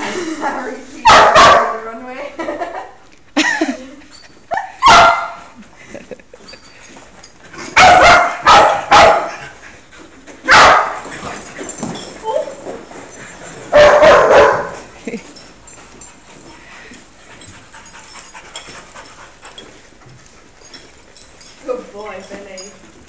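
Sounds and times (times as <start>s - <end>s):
dogs barking: 1.0s - 1.8s, 4.6s - 5.5s, 7.8s - 9.6s, 10.4s - 11.1s, 13.7s - 14.9s.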